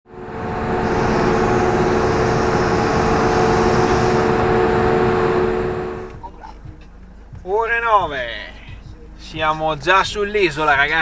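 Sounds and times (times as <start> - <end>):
ship engine and ventilation drone: 0.1 - 7.3.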